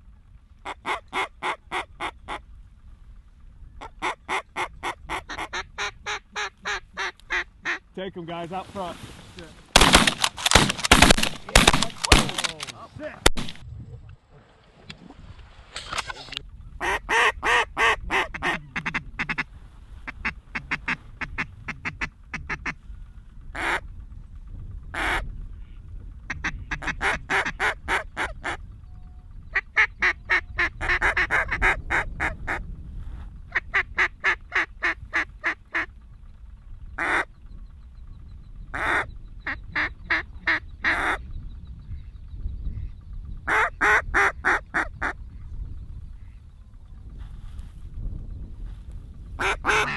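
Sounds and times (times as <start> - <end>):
duck call quacks: 0.6 - 2.4, 3.8 - 7.8, 16.8 - 19.5, 20.1 - 22.8, 23.6 - 23.8, 26.3 - 28.6, 29.6 - 32.6, 37.0 - 37.3, 38.8 - 41.2, 43.5 - 45.2, 49.4 - 49.9.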